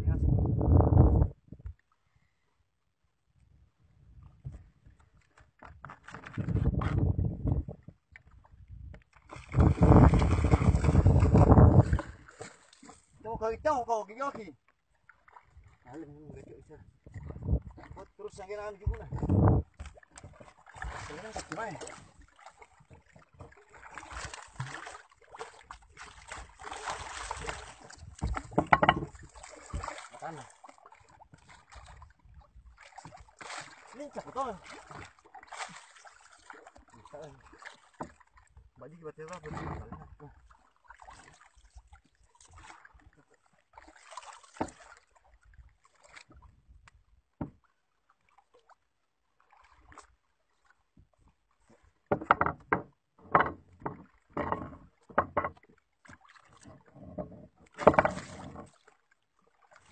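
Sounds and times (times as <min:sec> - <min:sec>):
water splashing against boat: 0:04.2 - 0:59.9
sharp thumps on hull: 0:27.4 - 0:30.1, 0:38.0 - 0:38.2, 0:47.4 - 0:47.7, 0:52.1 - 0:55.7, 0:56.8 - 0:58.8.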